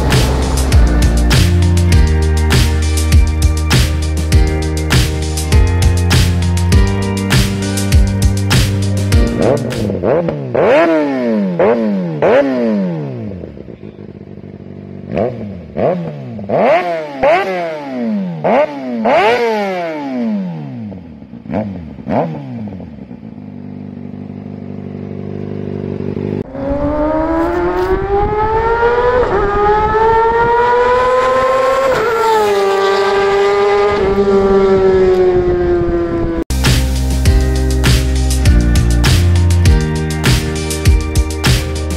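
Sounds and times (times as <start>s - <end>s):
motorcycle engine idling: 0.0s - 4.5s, 13.2s - 16.7s, 22.7s - 26.5s
motorcycle engine accelerating: 0.0s - 41.9s
motorcycle engine revving: 0.0s - 41.9s.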